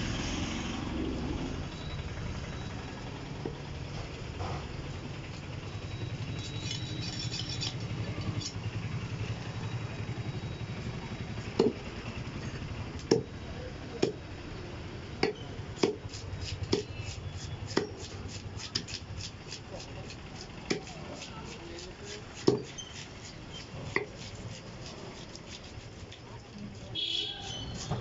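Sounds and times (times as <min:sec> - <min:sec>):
knife chopping fish on wood: 0:15.2 - 0:26.0, 0:26.7 - 0:28.0.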